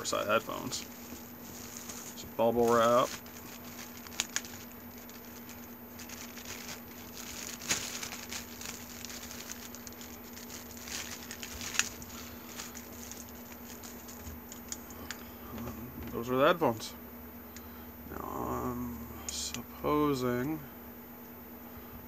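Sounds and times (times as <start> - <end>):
steady low hum: 0.0 - 22.0
bubble wrap crinkling: 0.1 - 15.2
bubble wrap crackles: 0.2 - 15.2.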